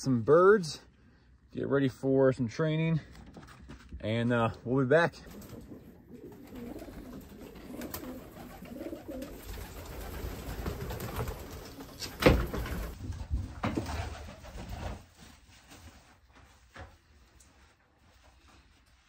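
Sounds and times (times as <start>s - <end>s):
pigeons cooing: 5.3s - 12.3s.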